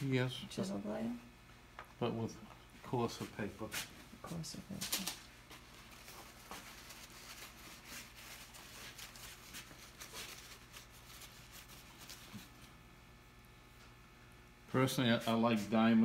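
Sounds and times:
low electrical hum: 0.0 - 16.0
rustling of things handled: 2.8 - 12.8.

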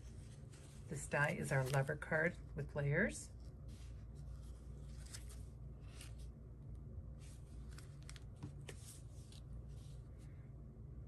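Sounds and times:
paper rustling: 0.0 - 2.2, 3.7 - 6.3, 7.2 - 10.2
low steady hum: 0.0 - 11.0.

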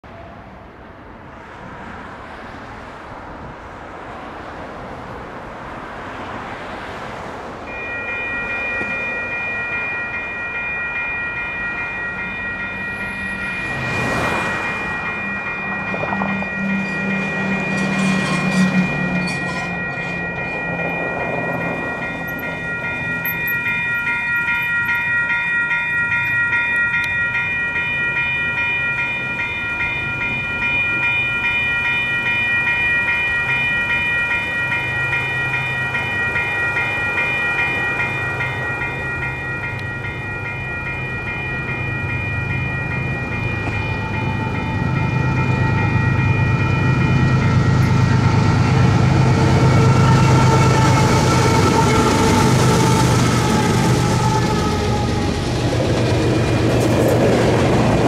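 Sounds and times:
road traffic passing: 0.1 - 58.0
railroad crossing bells ringing: 1.2 - 58.0.

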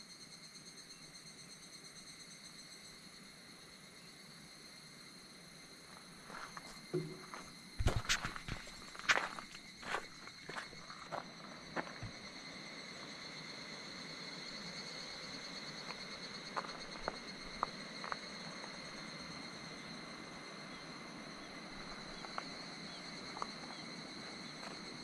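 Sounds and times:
insects singing: 5.7 - 25.0.

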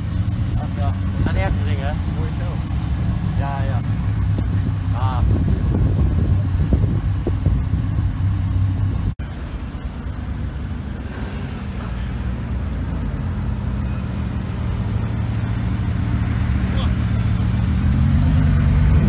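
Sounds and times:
sports car engine running: 0.0 - 11.0
sports car engine rumbling: 0.0 - 19.0.

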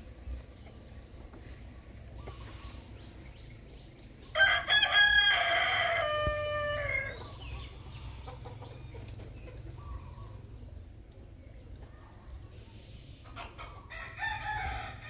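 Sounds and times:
rooster crowing: 4.3 - 7.2, 13.9 - 15.0.

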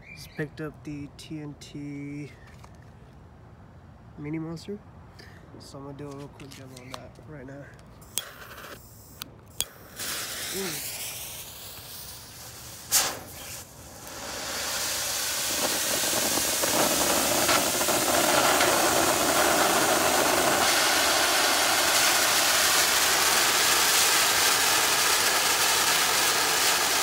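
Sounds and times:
fountain firework hissing: 8.0 - 27.0
firework pop: 12.9 - 27.0.

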